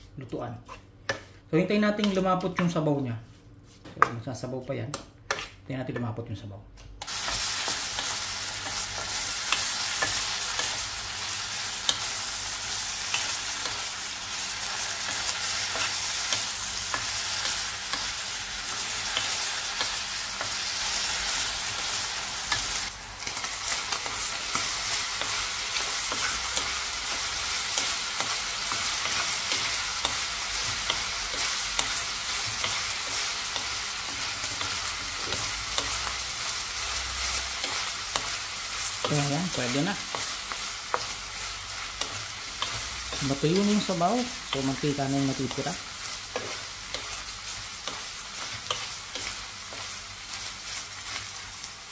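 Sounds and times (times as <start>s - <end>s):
wooden spoon scraping a pan: 0.0s - 1.3s
meat sizzling in a frying pan: 7.0s - 51.9s.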